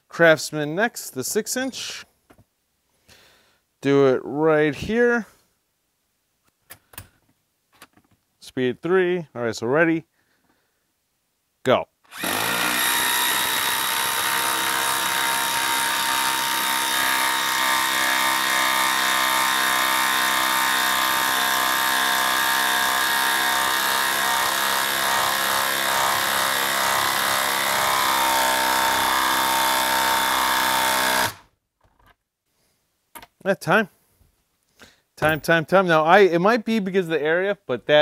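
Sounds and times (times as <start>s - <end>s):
impact driver hammering screw: 12.1s - 31.5s.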